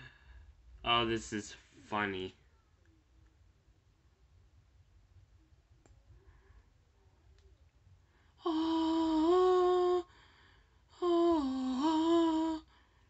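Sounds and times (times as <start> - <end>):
person humming: 8.4 - 10.1, 10.9 - 12.7.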